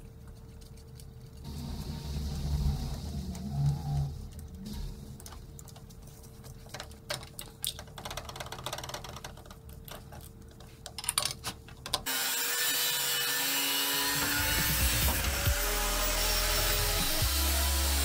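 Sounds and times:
angle grinder cutting metal: 12.1s - 18.0s.

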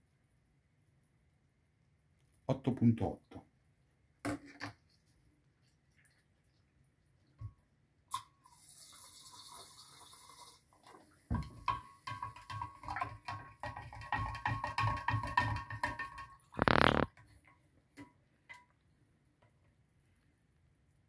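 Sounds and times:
spoon stirring in glass jar: 11.4s - 17.1s.

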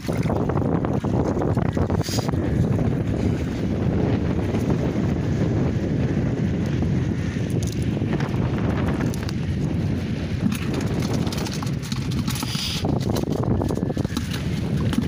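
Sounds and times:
wind rumbling on microphone: 0.0s - 15.0s
fishing net clicking on plastic: 7.5s - 7.9s, 10.4s - 15.0s.

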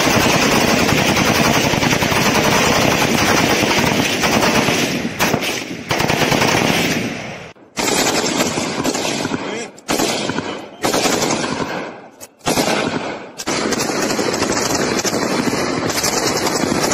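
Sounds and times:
automatic rifle fire: 0.0s - 16.9s.

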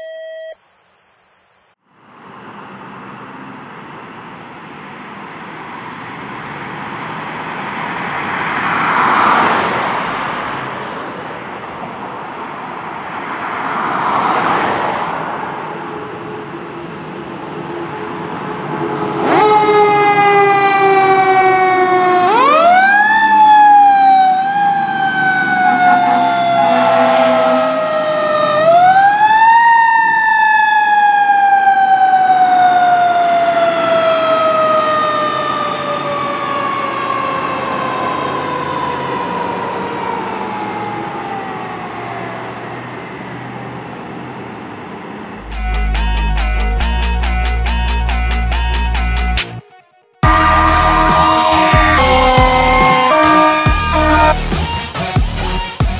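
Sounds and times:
fire engine siren wailing: 13.2s - 55.6s.

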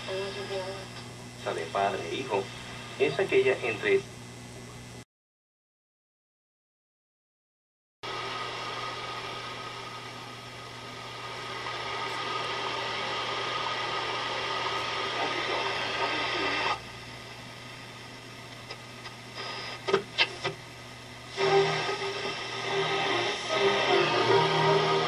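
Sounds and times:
radio hiss and static: 0.0s - 5.0s, 8.1s - 25.0s
steady low hum: 0.0s - 5.0s, 8.1s - 25.0s
radio whistles and chirps: 19.4s - 20.5s.

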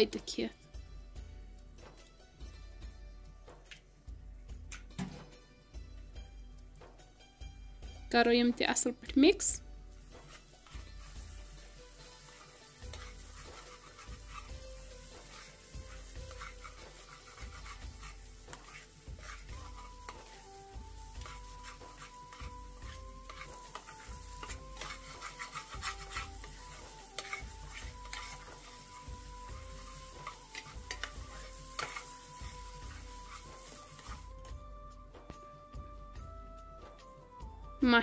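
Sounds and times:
faint soft melody: 0.0s - 38.0s
hot oil sizzling: 8.7s - 34.6s
metal spoon scraping a pan: 10.0s - 34.6s.

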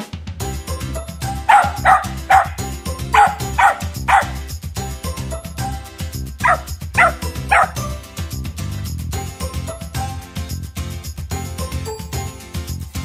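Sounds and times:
background music: 0.0s - 13.0s
dog barking: 1.5s - 4.4s, 6.4s - 7.9s.

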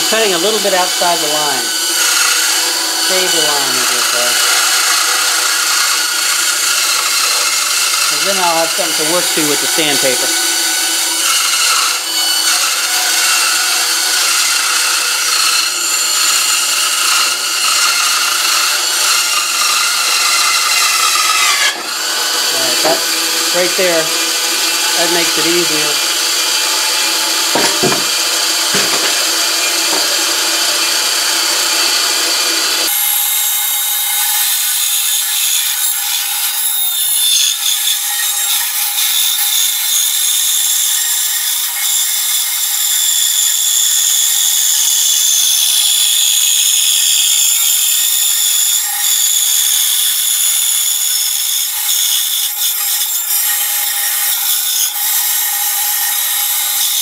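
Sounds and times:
band saw cutting wood: 0.0s - 57.0s
board knocking against table: 27.5s - 29.2s.

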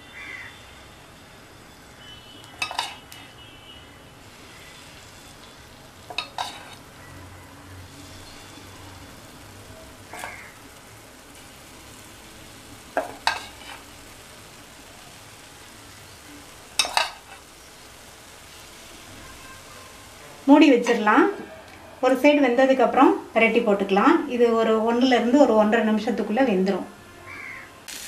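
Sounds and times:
oil sizzling in a pan: 0.0s - 26.7s, 27.3s - 28.0s
metal ladle clinking: 2.6s - 3.0s, 6.1s - 6.8s, 16.8s - 17.2s.

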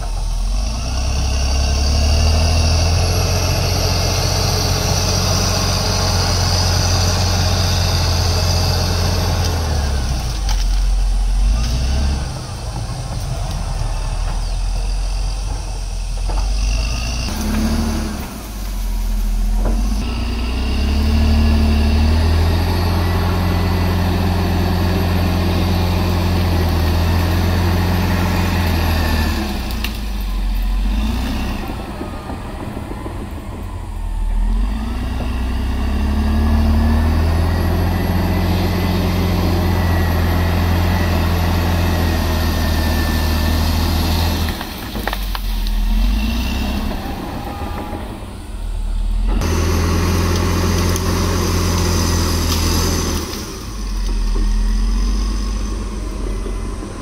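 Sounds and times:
bulldozer diesel engine under load: 0.0s - 57.0s.

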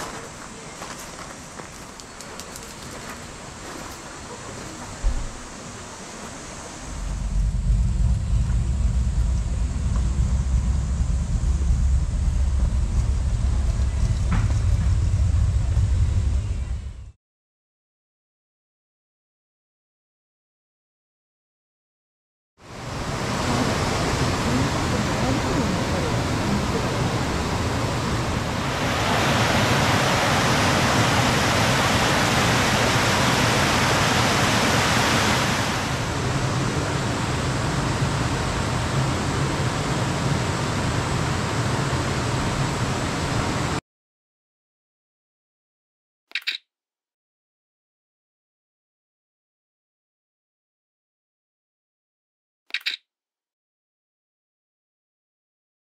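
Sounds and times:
low rumble: 6.8s - 17.2s
mountain stream flowing: 22.6s - 43.8s
water pouring over cascade: 28.5s - 39.3s.

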